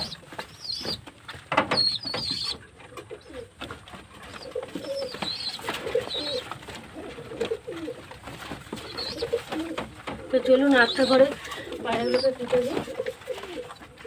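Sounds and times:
pigeons scuffling: 0.0s - 14.0s
pigeons cooing: 1.7s - 14.0s
wing flaps: 3.2s - 13.8s.

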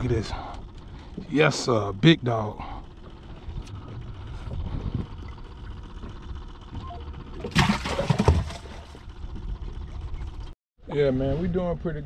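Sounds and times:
low rumble of wind and water: 0.0s - 12.0s
fish splashing in cooler: 7.4s - 9.0s.

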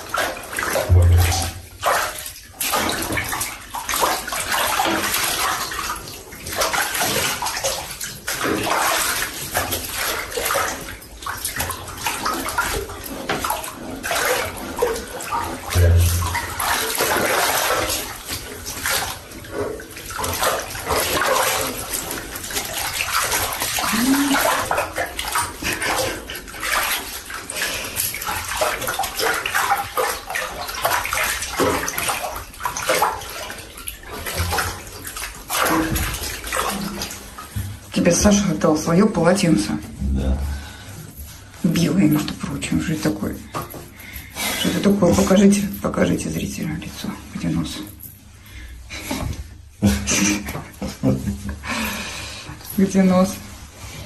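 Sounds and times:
water splashing in a tub: 0.0s - 54.0s
dull thump: 0.9s - 1.7s.

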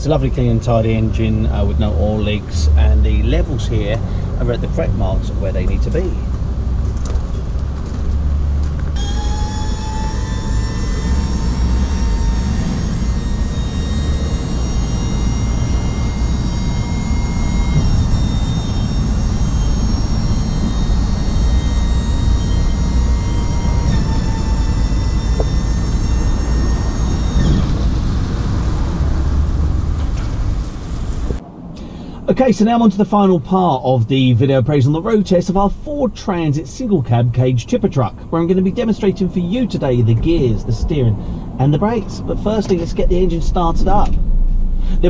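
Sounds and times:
steady low rumble: 0.0s - 45.0s
hydraulic pump whining: 1.2s - 31.4s.

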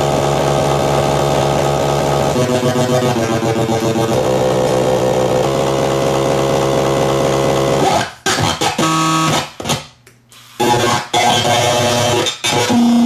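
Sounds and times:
glitching electronic toy voice: 2.4s - 5.2s, 10.6s - 13.0s.

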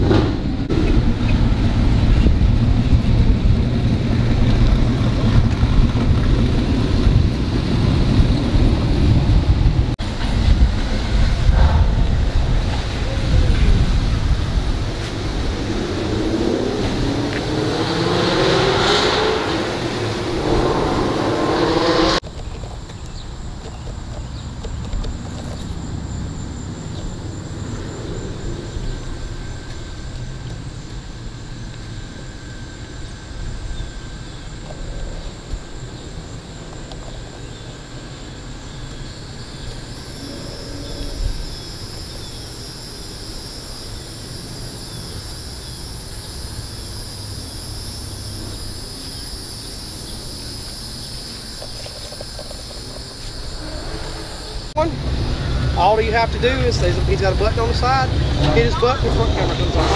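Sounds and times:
low rumble: 0.0s - 22.3s
high insect drone: 10.0s - 59.9s.

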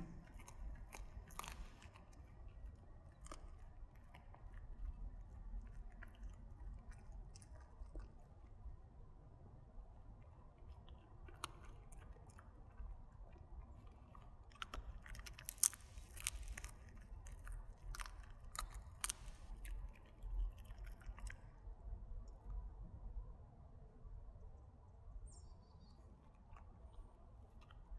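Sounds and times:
dog crunching bones: 0.0s - 8.4s, 10.9s - 21.5s.

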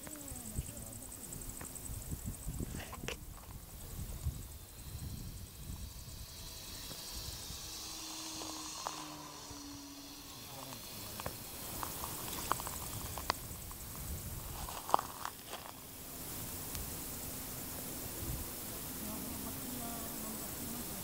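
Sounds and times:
wind rumble: 0.0s - 20.6s
model plane motor drone: 0.0s - 21.0s
outdoor hiss: 0.0s - 21.0s.

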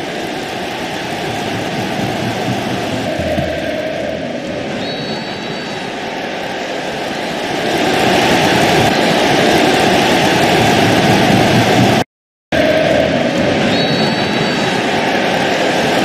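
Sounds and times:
stadium crowd roar: 0.0s - 16.0s.

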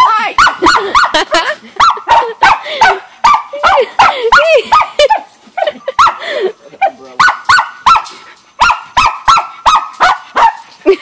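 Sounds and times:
dog yapping: 1.8s - 5.3s, 6.8s - 10.7s.

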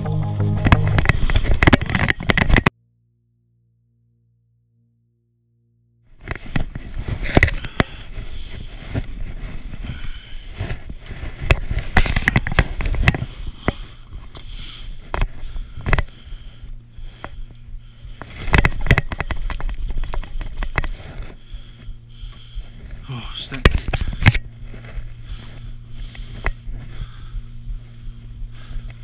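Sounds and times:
knocks and clicks: 0.0s - 2.7s.

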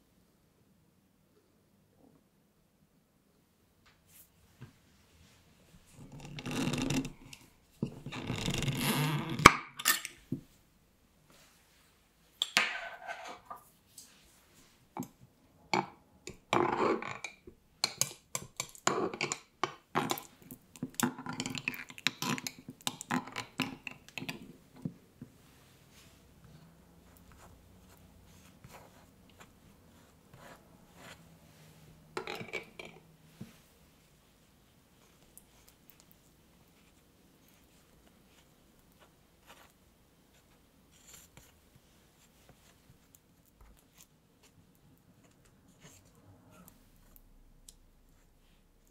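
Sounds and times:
jar lid grinding as it turns: 6.0s - 9.4s.

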